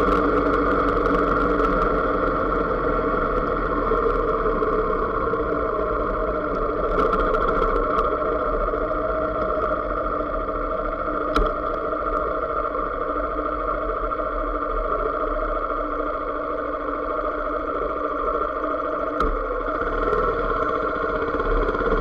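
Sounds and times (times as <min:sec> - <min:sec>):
motorcycle engine running: 0:00.0 - 0:08.7, 0:19.2 - 0:22.0.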